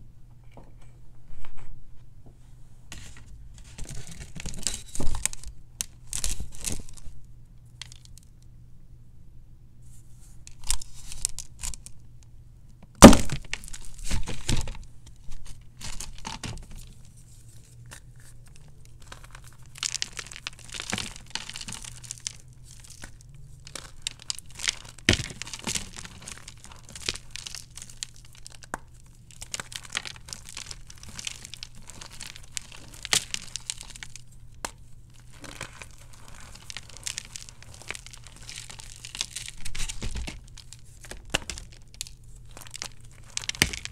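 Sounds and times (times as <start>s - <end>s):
chalk crunching and crumbling: 13.0s - 43.9s
chalk block cracking: 17.8s - 43.9s.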